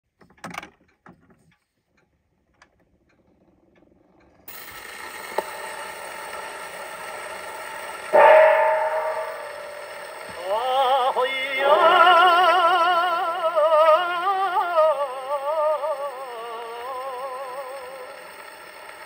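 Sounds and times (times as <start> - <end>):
record surface hiss and crackle: 0.9 - 19.0
music from a record: 10.3 - 19.0.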